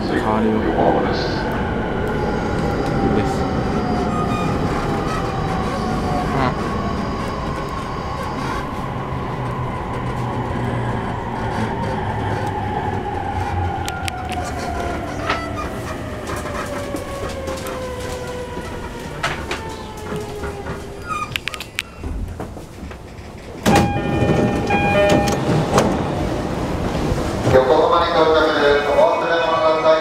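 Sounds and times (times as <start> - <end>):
train running gear rumble: 0.0 - 30.0
train traction motor whine: 23.6 - 26.2.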